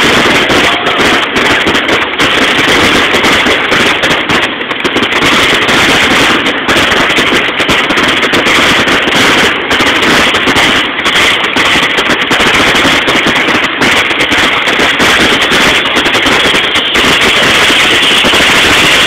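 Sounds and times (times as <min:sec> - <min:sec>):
fireworks bangs and crackles: 0:00.0 - 0:19.0.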